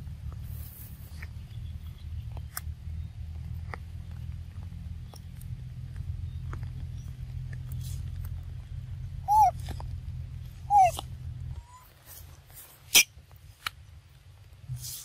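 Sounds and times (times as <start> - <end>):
low rumble: 0.0 - 15.0
young macaque squeaking: 9.2 - 9.8, 10.6 - 12.2.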